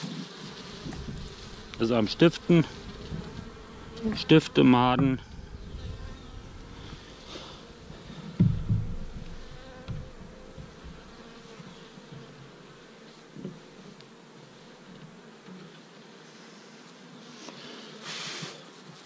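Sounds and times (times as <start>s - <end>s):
honeybees buzzing: 0.0s - 19.0s
soft knocks of hive frame: 2.8s - 6.3s, 7.9s - 12.5s.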